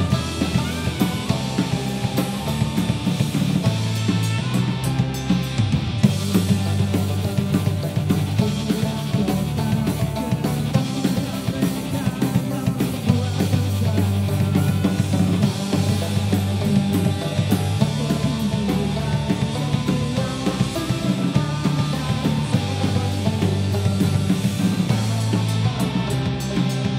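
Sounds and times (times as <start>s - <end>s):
bass guitar: 0.0s - 26.9s
drum kit beat: 0.0s - 26.9s
man singing into microphone: 6.2s - 26.8s.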